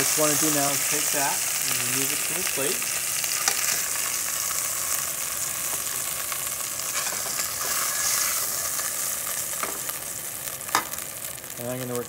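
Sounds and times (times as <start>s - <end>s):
oil and meat sizzling in a pot: 0.0s - 12.0s
metal tongs scraping a pot: 3.3s - 4.0s, 6.9s - 8.9s.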